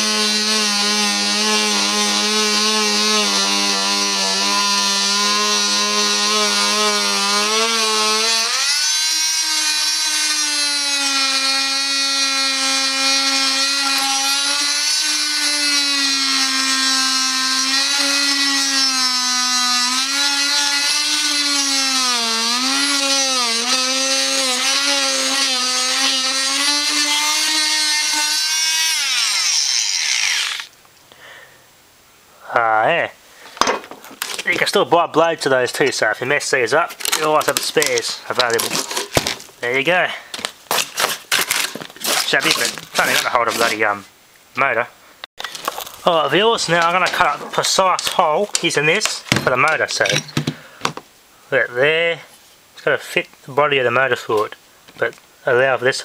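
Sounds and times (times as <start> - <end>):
multi-tool saw cutting wood: 0.0 - 30.7, 36.9 - 39.5, 40.4 - 44.0, 46.4 - 49.9.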